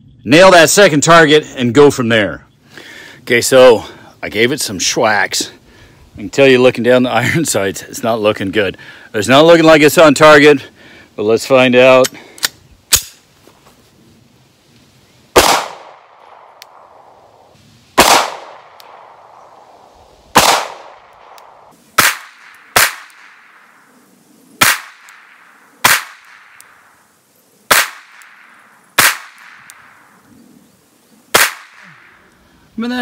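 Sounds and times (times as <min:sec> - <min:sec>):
pistol shots with echo: 0:15.4 - 0:17.2, 0:18.0 - 0:19.7, 0:20.3 - 0:23.6, 0:24.6 - 0:26.8, 0:27.7 - 0:30.0, 0:31.3 - 0:32.2.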